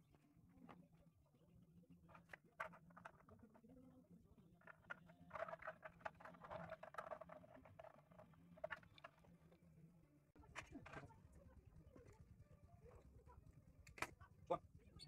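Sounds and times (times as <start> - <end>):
plastic parts clicking and scraping: 2.1 - 3.6, 4.6 - 9.5.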